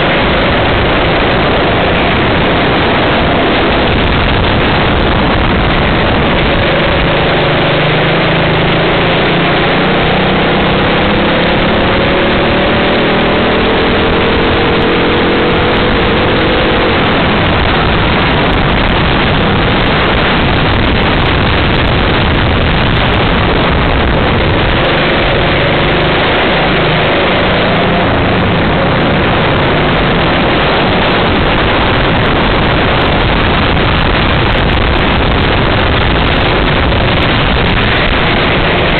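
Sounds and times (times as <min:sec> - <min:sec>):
kart engine accelerating: 0:00.0 - 0:38.9
wind and road noise: 0:00.0 - 0:38.9.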